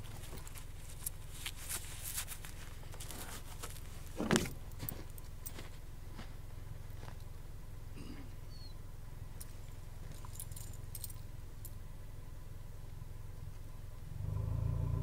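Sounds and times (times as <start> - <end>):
footsteps crunching through snow: 0.0 - 7.2
steady low hum: 0.0 - 15.0.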